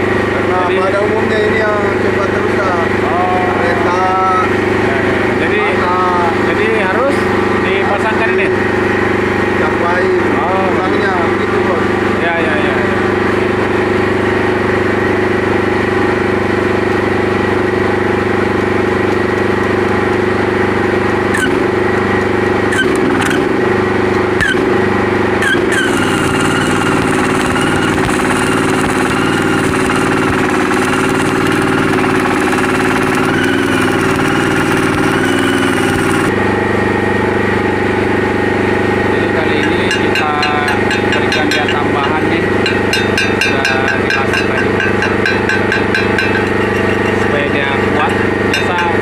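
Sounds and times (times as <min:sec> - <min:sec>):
engine running: 0:00.0 - 0:49.0
welding arc crackling and hissing: 0:25.7 - 0:36.3.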